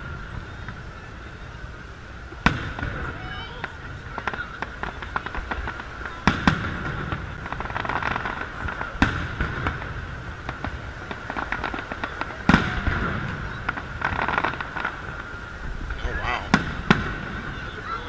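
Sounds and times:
firework crackling: 0.0s - 18.0s
firework shells bursting: 2.4s - 18.0s.

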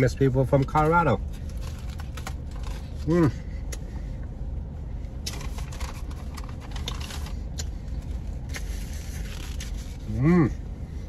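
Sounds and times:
low hum inside car: 0.0s - 11.0s
foil wrapper crinkling: 1.3s - 3.0s, 5.3s - 7.4s, 8.5s - 10.0s.

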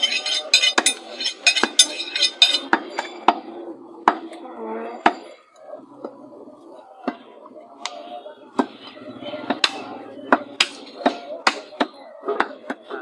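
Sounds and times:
low voices murmuring: 0.0s - 13.0s.

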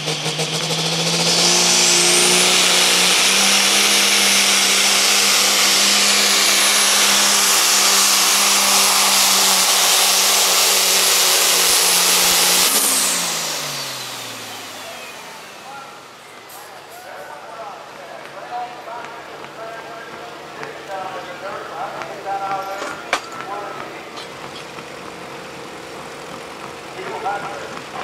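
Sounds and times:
diesel truck engine under load: 0.0s - 28.0s.

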